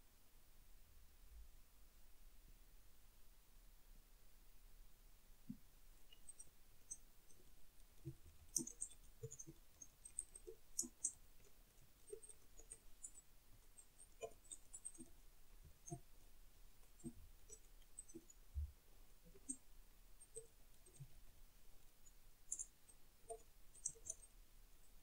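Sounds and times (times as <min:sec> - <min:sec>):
computer keys clicking: 0:06.1 - 0:15.2, 0:22.5 - 0:24.3.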